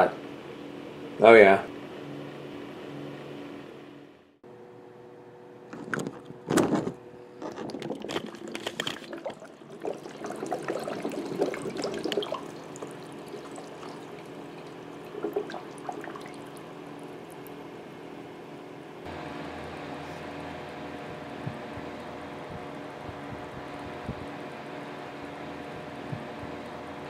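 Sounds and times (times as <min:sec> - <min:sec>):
steady low hum: 0:00.0 - 0:27.0
water pouring and trickling: 0:07.4 - 0:17.6.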